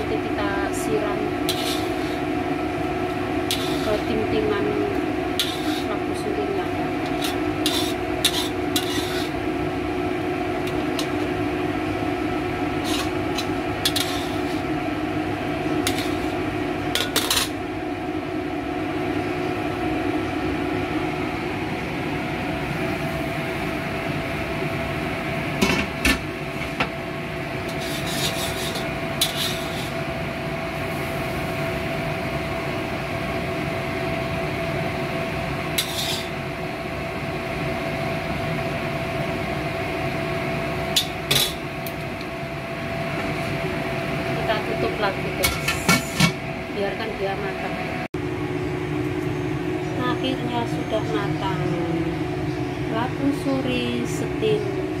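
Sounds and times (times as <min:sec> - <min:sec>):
steady hum: 0:00.0 - 0:55.0
metal ladle scraping in a wok: 0:01.4 - 0:02.3, 0:03.4 - 0:06.3, 0:06.9 - 0:09.4, 0:12.8 - 0:14.8, 0:15.6 - 0:17.6, 0:27.7 - 0:30.1, 0:35.8 - 0:36.4.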